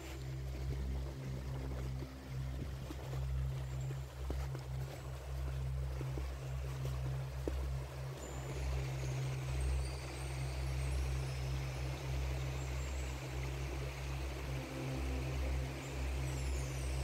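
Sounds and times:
stream rushing over rocks: 4.7 - 17.0.

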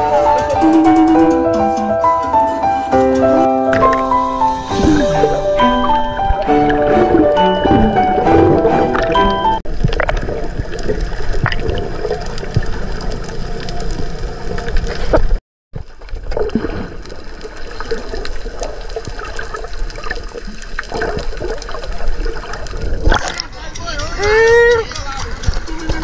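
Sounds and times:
muffled underwater rushing water: 2.7 - 23.8
small clicks and bubbles: 9.7 - 26.0.

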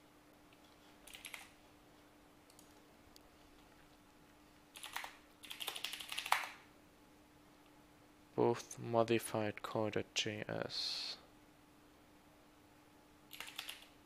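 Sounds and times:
computer keyboard typing: 0.5 - 1.6, 2.5 - 2.8, 4.7 - 6.6, 13.3 - 14.0.

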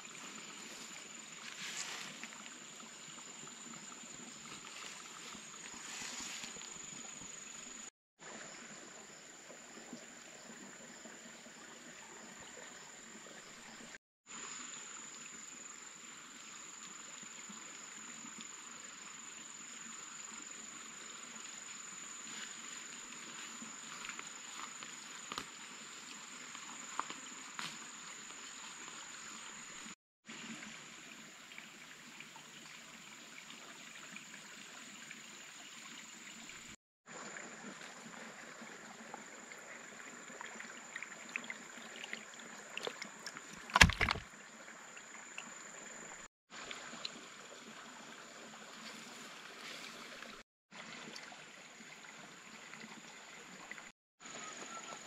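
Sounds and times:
water sloshing and trickling: 0.0 - 7.9, 20.3 - 53.9.

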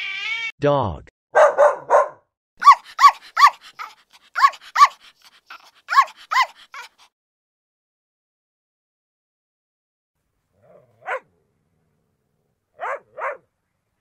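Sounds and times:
dog barking: 1.3 - 7.0, 10.6 - 11.3, 12.8 - 13.5.

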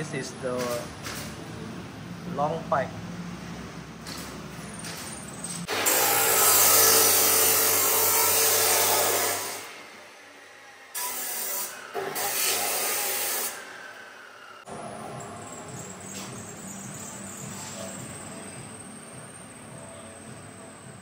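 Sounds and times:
power tool on steel pipe: 5.7 - 14.7.

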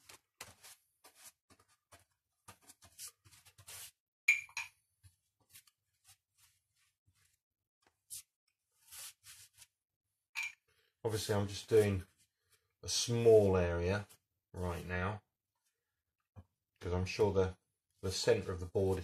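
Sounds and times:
paintbrush scratchy swishes: 0.0 - 4.0, 5.4 - 7.4, 8.0 - 9.7.

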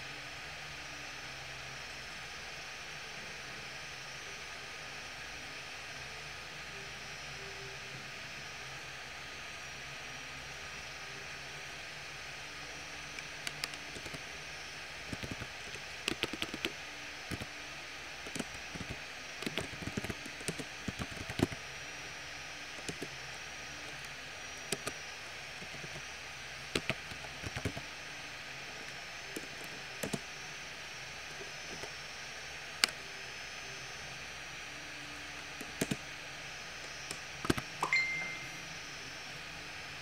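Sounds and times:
keyboard keys clicking: 13.4 - 14.2, 15.1 - 16.7, 18.3 - 21.6, 22.8 - 23.1, 24.7 - 24.9, 26.8 - 27.8, 30.0 - 30.2, 35.6 - 36.0, 37.1 - 38.3.

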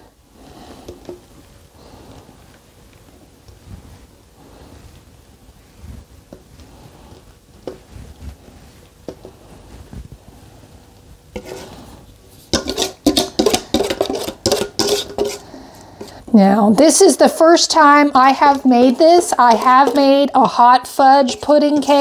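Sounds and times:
spatula scraping metal bowl: 11.4 - 16.2, 16.8 - 22.0.

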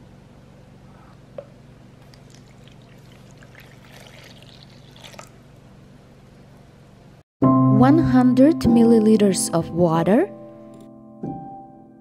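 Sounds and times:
milk splashing into bowl: 2.0 - 5.4.

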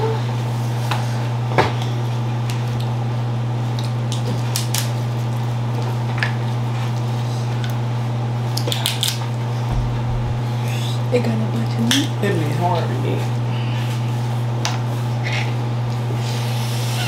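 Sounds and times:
steady low hum: 9.7 - 11.5.

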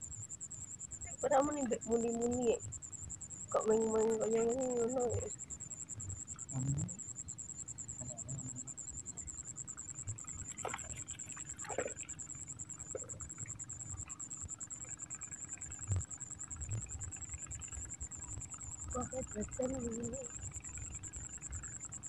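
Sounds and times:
pulsing insect trill: 0.0 - 22.0.

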